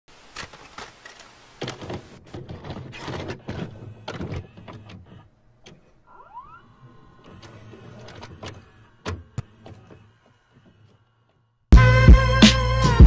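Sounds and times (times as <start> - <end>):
vcr clunks clicks and whirring: 0.4 - 11.1
short rising whines: 6.1 - 11.6.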